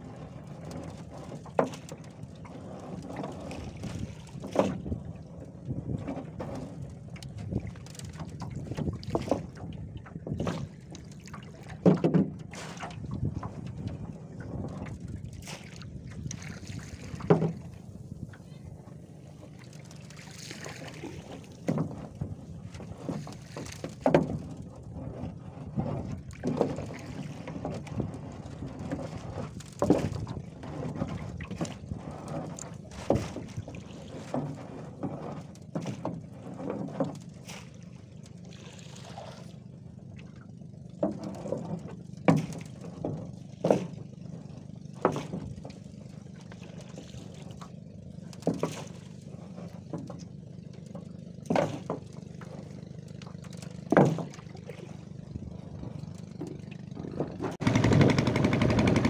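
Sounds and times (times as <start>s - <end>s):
steady low hum: 0.0s - 59.0s
water splashing: 7.3s - 24.5s, 35.9s - 59.0s.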